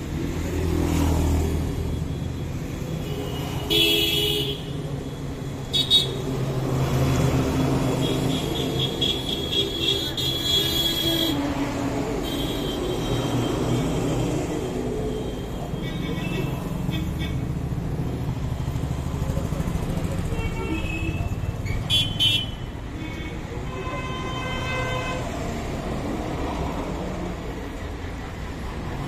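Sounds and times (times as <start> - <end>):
rumble of vehicle engines: 0.0 - 29.0
vehicle horns honking: 3.1 - 4.7, 8.0 - 11.5, 20.3 - 25.3.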